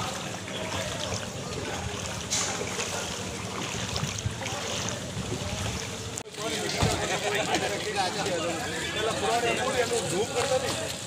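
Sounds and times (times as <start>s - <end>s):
floodwater sloshing and splashing: 0.0s - 11.0s.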